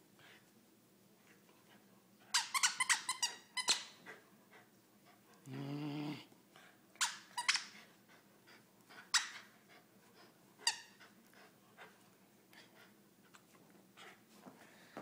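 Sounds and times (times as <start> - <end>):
squeaky dog toy squeaking: 2.3 - 4.0, 7.0 - 7.8, 9.1 - 9.5, 10.6 - 11.0.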